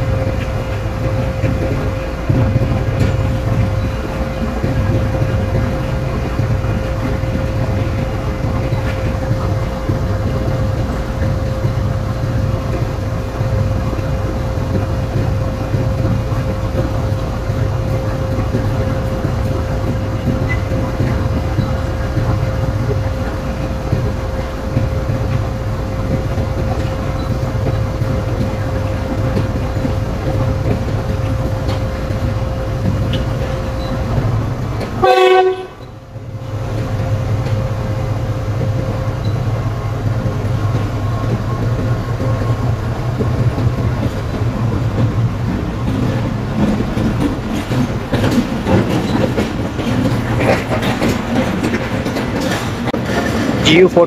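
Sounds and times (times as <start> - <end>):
diesel locomotive rumble: 0.0 - 54.0
locomotive horn blast: 35.0 - 35.9.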